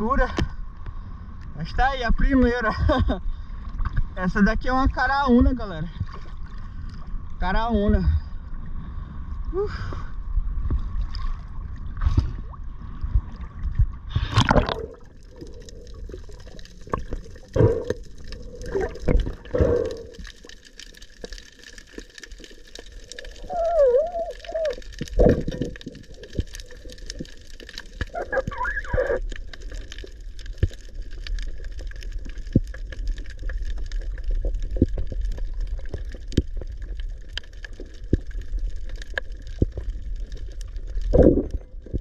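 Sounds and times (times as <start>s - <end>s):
sea water sloshing and gurgling: 2.7s - 42.0s
underwater knocks and clicks: 13.1s - 23.2s, 23.8s - 42.0s
muffled underwater noise: 23.1s - 30.0s.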